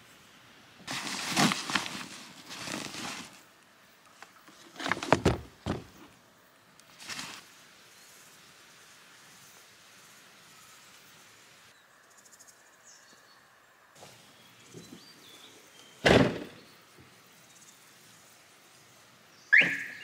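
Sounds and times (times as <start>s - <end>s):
gear rustling and knocking: 4.5s - 6.0s
boot knocking on cargo floor: 4.9s - 6.0s.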